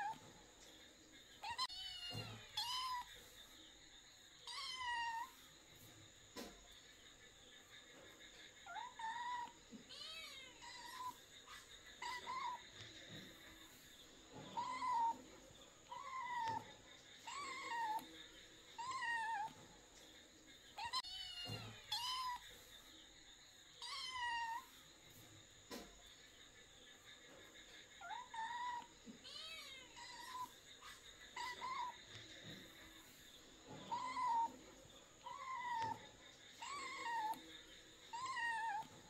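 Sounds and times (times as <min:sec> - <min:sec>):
kitten meowing: 0:36.6 - 0:37.4, 0:38.1 - 0:38.9.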